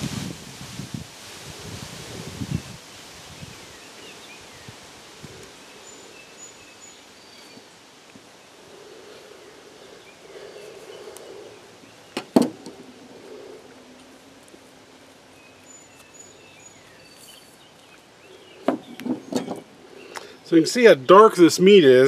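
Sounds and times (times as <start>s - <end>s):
sharp knocks: 12.2s - 12.8s.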